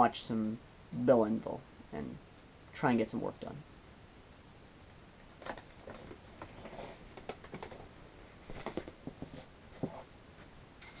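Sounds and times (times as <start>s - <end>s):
office chair knocks and clicks: 5.4s - 7.8s, 8.5s - 10.0s.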